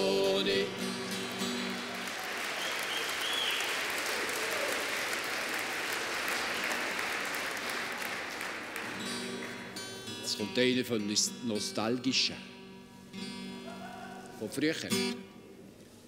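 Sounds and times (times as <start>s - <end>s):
audience applause: 1.0s - 10.1s.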